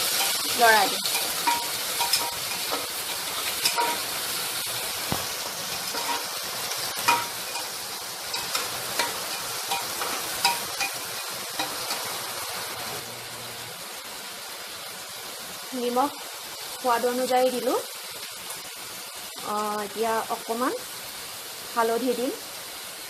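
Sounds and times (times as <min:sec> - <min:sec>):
vegetables sizzling in hot oil: 0:00.0 - 0:23.0
spatula scraping and knocking pot: 0:05.1 - 0:06.3.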